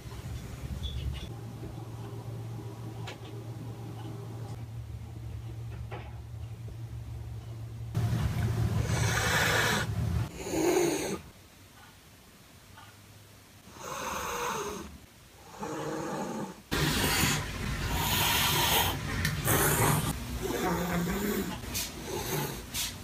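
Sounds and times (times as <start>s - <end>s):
cat hissing and growling: 8.8s - 11.3s, 13.7s - 23.0s.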